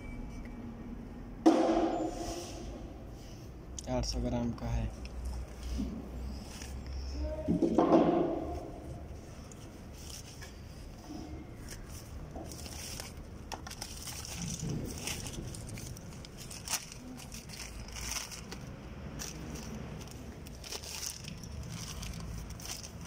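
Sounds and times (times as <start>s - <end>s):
plastic packaging crinkling: 11.6s - 23.0s.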